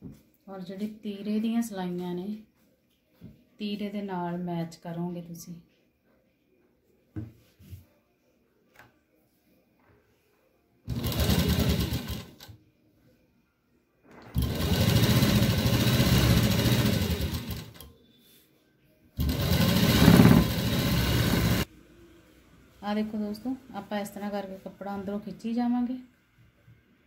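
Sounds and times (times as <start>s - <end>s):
sewing machine stitching: 10.9s - 12.5s, 14.2s - 17.9s, 19.2s - 21.7s.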